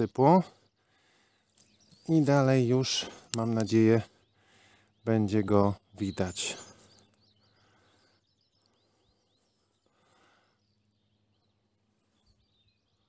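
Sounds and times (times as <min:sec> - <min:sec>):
birds chirping: 0:00.0 - 0:13.0
low steady hum: 0:00.0 - 0:13.0.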